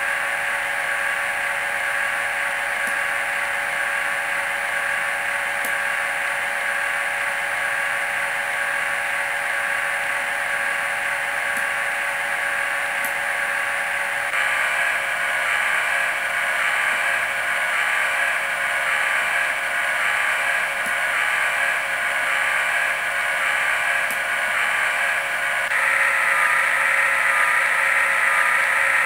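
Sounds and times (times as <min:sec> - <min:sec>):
model train idle hum: 0:00.0 - 0:29.0.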